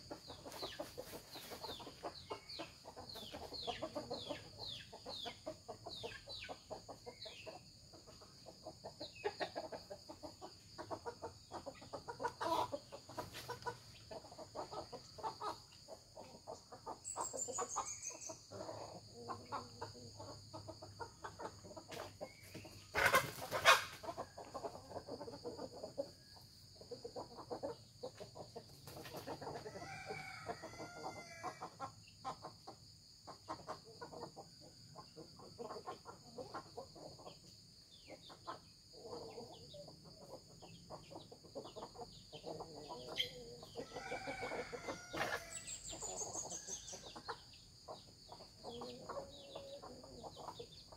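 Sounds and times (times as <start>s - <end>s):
chickens clucking: 0.0s - 50.9s
rooster crowing: 29.7s - 31.6s, 43.8s - 47.0s.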